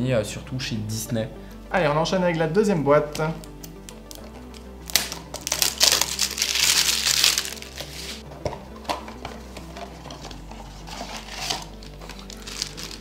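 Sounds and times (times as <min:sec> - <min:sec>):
quiet background music: 0:00.0 - 0:13.0
cardboard packaging rustling: 0:04.2 - 0:13.0.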